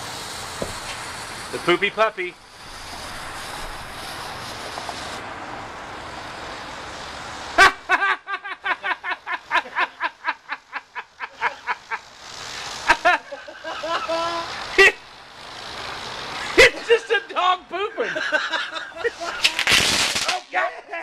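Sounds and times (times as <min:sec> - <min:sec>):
loud burst: 0:00.0 - 0:08.0, 0:09.0 - 0:17.5, 0:18.5 - 0:20.5
firework hissing: 0:00.0 - 0:20.6
high-pitched laughter: 0:07.6 - 0:12.1, 0:12.7 - 0:15.0, 0:18.0 - 0:19.7.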